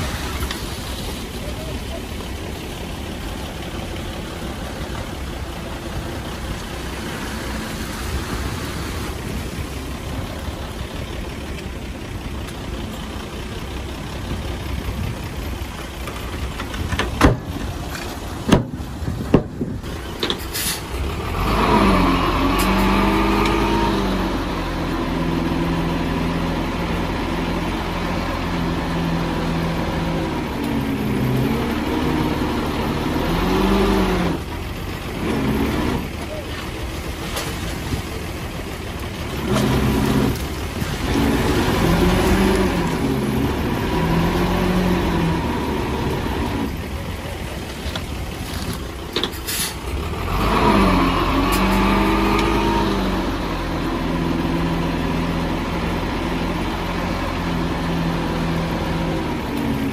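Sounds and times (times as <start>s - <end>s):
diesel engine revving: 0.0s - 59.9s
heavy diesel machinery running: 0.0s - 59.9s.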